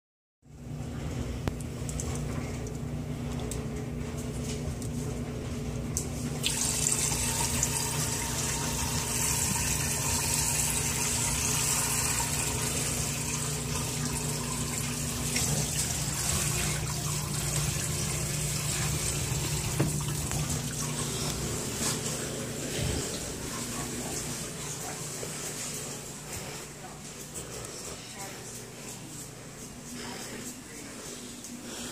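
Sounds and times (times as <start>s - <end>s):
low steady hum: 0.5s - 31.9s
water running from a tap: 6.4s - 25.7s.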